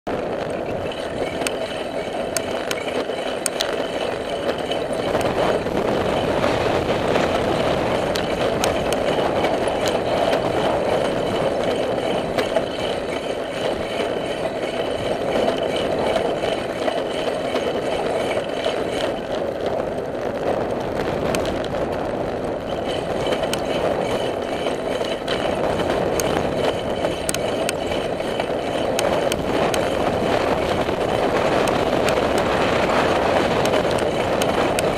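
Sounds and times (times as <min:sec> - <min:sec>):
bicycle rolling on pavement: 0:00.1 - 0:34.9
light clicks and rattles: 0:00.6 - 0:06.2.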